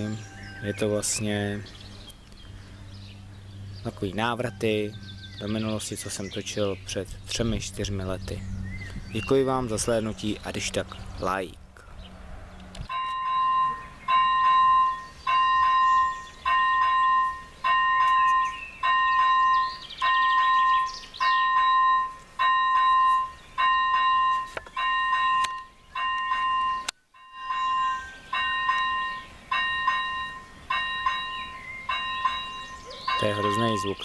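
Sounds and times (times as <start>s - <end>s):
level crossing warning bell: 0.0s - 1.7s, 12.9s - 34.0s.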